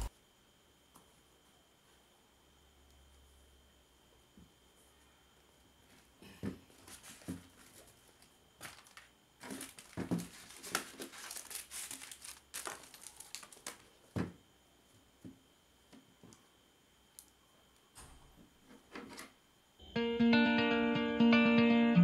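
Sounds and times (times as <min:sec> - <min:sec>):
plastic wrapping crinkling: 0:06.8 - 0:14.2.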